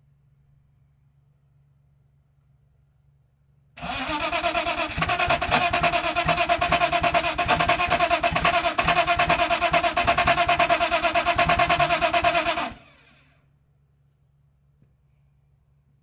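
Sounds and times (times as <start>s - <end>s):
engine cranking without firing: 3.8s - 13.3s.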